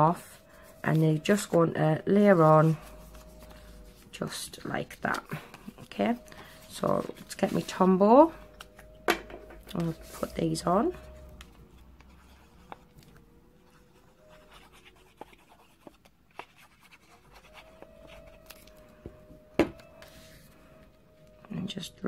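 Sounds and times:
paper being handled: 0.2s - 8.0s.

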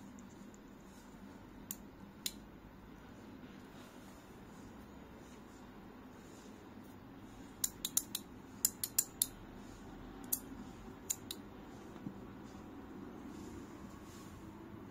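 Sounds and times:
fidget toy clicking: 7.6s - 9.4s.

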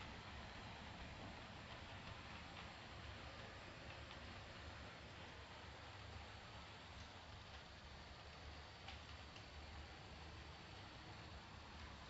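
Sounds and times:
faint hiss: 0.0s - 12.0s
light ticks: 1.6s - 9.8s.

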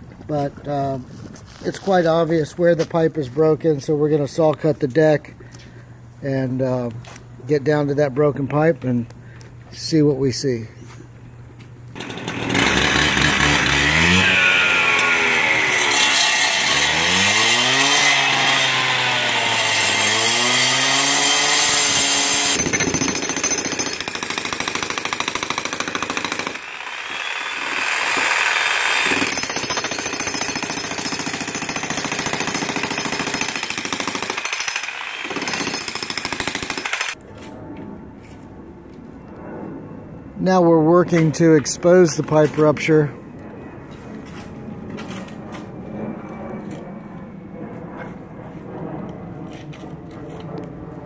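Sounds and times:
cut-off saw cutting brick: 12.0s - 37.2s.

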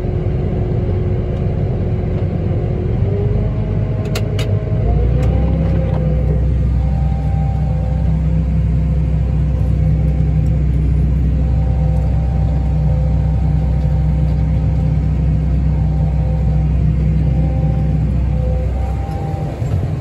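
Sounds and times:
diesel engine rumble from cab: 0.0s - 20.0s
faint whine: 6.0s - 20.0s.

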